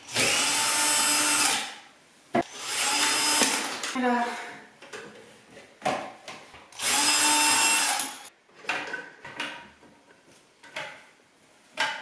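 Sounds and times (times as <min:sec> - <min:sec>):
cordless drill whirring: 0:00.0 - 0:01.7, 0:02.5 - 0:03.7, 0:06.8 - 0:08.2.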